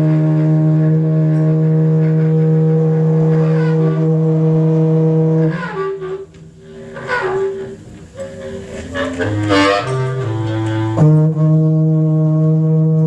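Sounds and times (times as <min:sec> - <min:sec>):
conch shell blown low note: 0:00.0 - 0:13.0.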